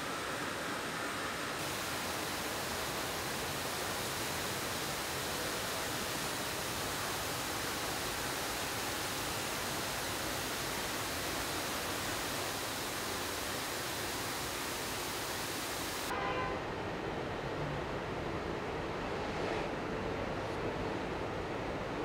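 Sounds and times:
water spraying from nozzles: 0.0s - 16.1s.

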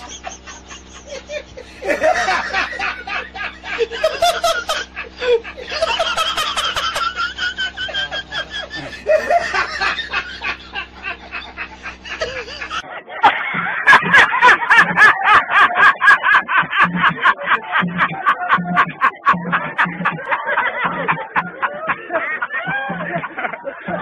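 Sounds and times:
high-pitched cartoonish laughing: 8.0s - 24.0s.

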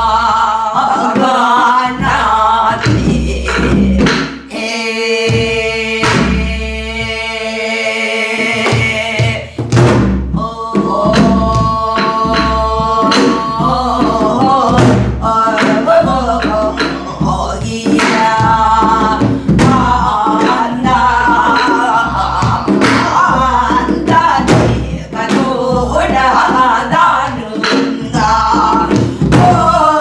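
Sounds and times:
women singing folk song: 0.0s - 30.0s
hand drum strokes: 8.5s - 30.0s.

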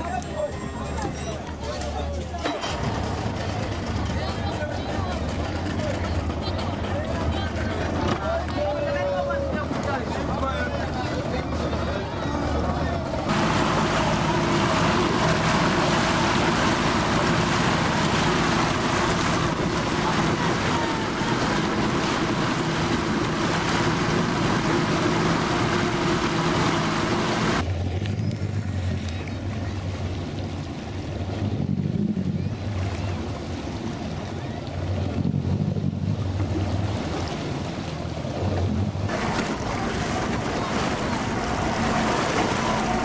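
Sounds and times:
motorboat engine: 0.0s - 43.0s
water lapping: 0.0s - 43.0s
water rushing past hull: 0.0s - 43.0s
wind on microphone: 13.3s - 43.0s.

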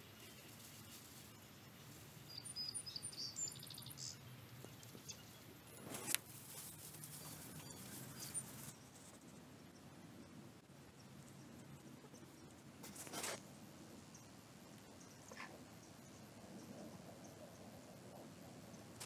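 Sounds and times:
high bird chirps: 2.3s - 4.2s.

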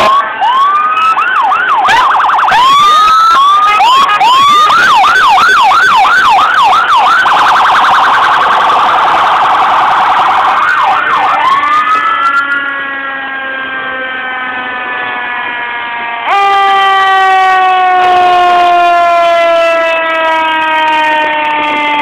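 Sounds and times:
fire engine sirens wailing: 0.0s - 22.0s.

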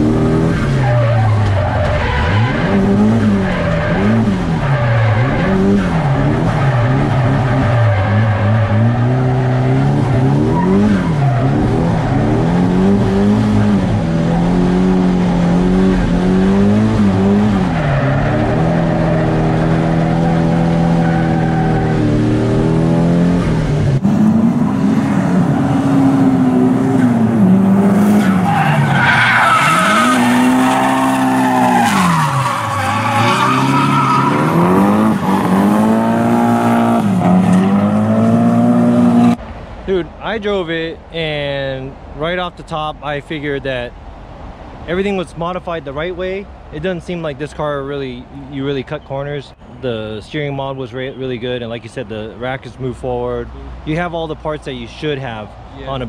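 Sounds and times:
car engine revving: 0.0s - 39.4s
tyres squealing: 28.0s - 36.2s.

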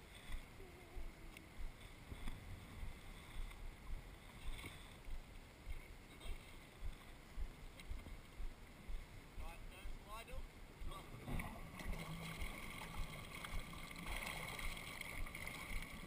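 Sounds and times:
water slapping against surfboard: 10.9s - 16.0s.

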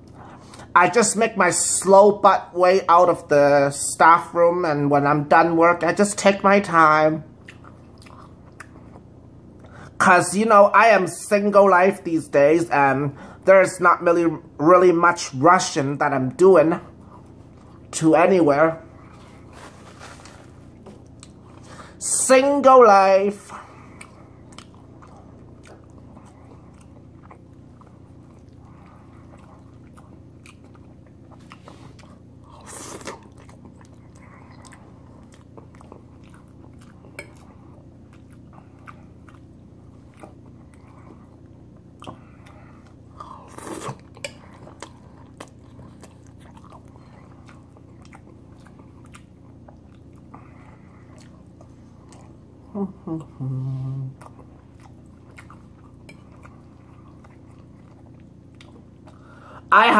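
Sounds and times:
person chewing food: 0.0s - 0.7s, 7.3s - 9.9s, 18.9s - 22.0s, 23.5s - 59.7s
steady low hum: 0.0s - 59.9s.

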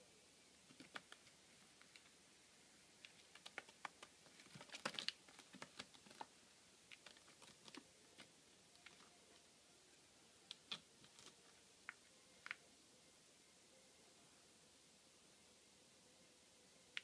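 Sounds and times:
faint clicks and scratches: 0.6s - 2.2s, 3.0s - 9.4s, 10.5s - 12.6s.

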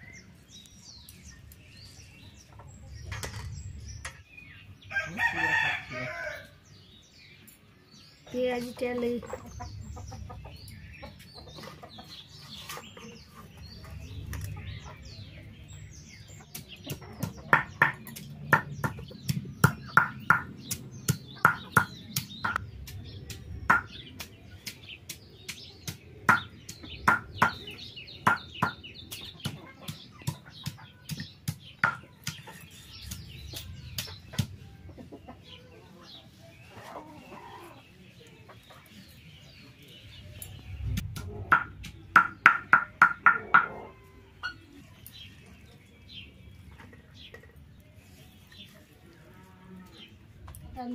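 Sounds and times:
chickens clucking: 1.0s - 6.5s, 8.3s - 49.2s
stone pestle pounding on stone: 16.9s - 24.0s, 24.6s - 27.6s, 41.2s - 43.7s.

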